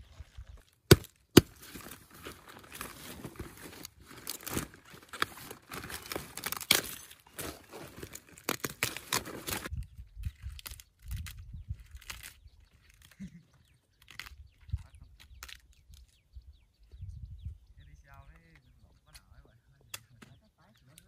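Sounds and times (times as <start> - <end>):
crackling and rustling: 0.0 - 16.2.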